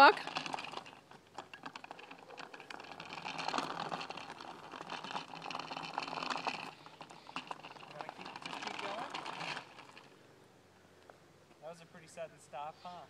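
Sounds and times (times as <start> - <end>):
small bicycle rattling over asphalt: 0.0 - 10.4.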